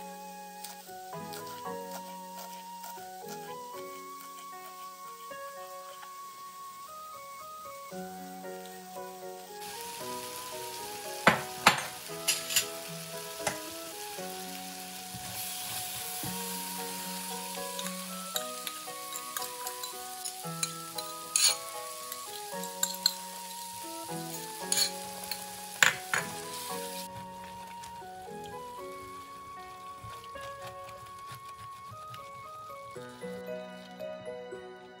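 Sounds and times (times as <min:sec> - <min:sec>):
food sizzling in a frying pan: 0:00.0 - 0:33.4
soft background music: 0:00.0 - 0:35.0
spoon knocking on pan: 0:11.2 - 0:12.7, 0:13.4 - 0:13.7, 0:24.6 - 0:26.5.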